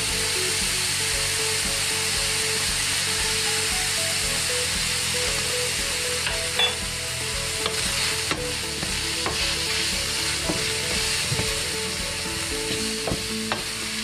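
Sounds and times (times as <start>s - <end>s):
meat sizzling in a frying pan: 0.0s - 14.0s
wooden spatula scraping a pan: 7.6s - 14.0s.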